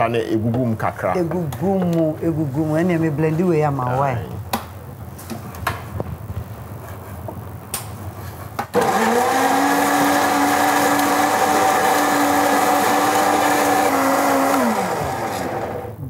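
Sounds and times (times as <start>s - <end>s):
blender running: 8.7s - 16.0s.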